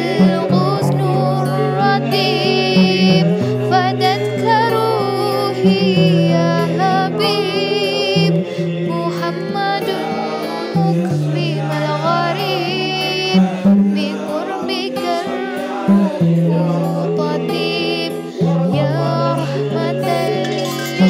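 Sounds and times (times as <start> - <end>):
person singing ornamented melody: 0.0 - 21.0.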